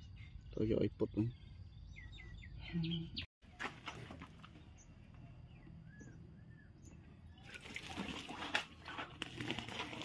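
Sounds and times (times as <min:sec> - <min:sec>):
water sloshing and dripping: 0:03.5 - 0:04.6, 0:07.4 - 0:10.0.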